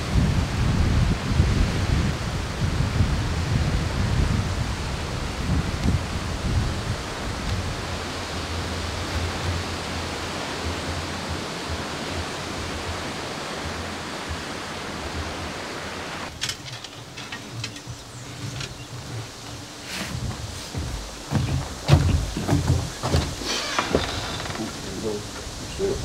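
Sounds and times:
wind buffeting microphone: 0:00.0 - 0:26.0
scattered clicks and knocks: 0:16.3 - 0:24.8.

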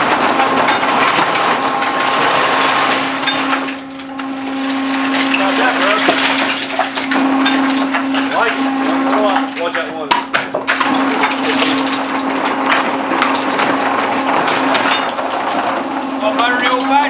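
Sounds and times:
mining machine humming: 0:00.0 - 0:17.0
machine squeals: 0:00.2 - 0:09.7, 0:14.2 - 0:17.0.

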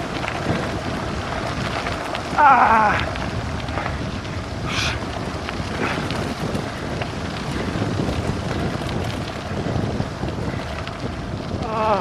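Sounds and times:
tyres rolling on gravel: 0:00.0 - 0:12.0
wind rushing over microphone: 0:00.0 - 0:12.0.

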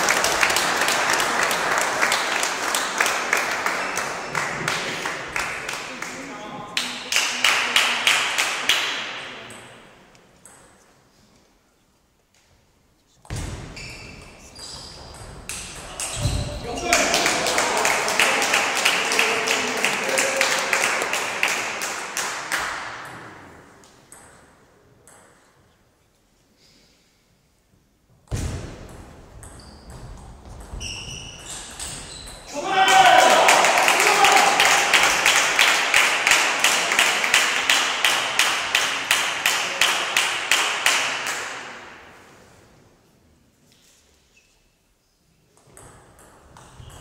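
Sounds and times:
spectators applauding and cheering: 0:00.0 - 0:06.2, 0:16.0 - 0:22.7, 0:32.5 - 0:41.1
crowd noise: 0:00.0 - 0:10.0, 0:15.6 - 0:22.9.

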